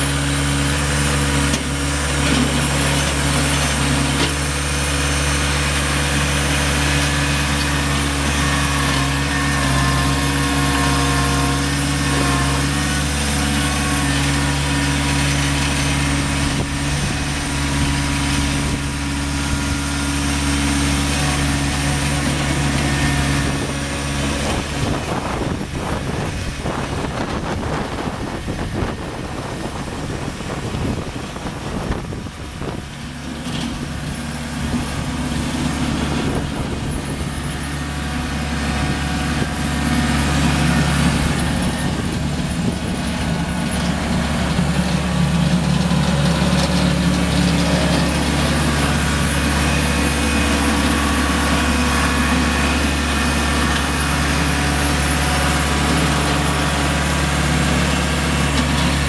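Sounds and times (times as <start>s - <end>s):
diesel tractor engine running: 0.0s - 59.0s
tractor moving across gravel: 0.0s - 59.0s.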